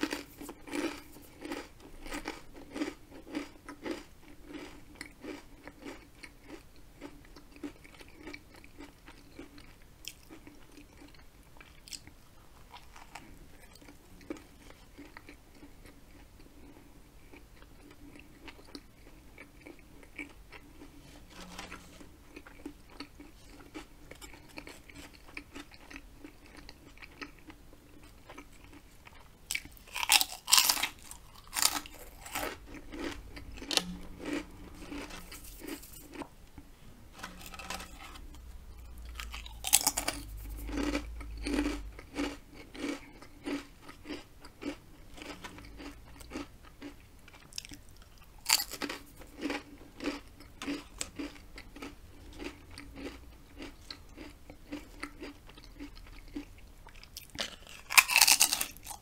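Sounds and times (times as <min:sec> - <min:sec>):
chewing with wet mouth sounds: 0:00.0 - 0:20.9, 0:22.2 - 0:36.3, 0:37.2 - 0:59.0
loud crackly crunching: 0:29.5 - 0:36.3, 0:37.2 - 0:38.4, 0:39.1 - 0:47.8, 0:48.4 - 0:55.0, 0:56.2 - 0:59.0.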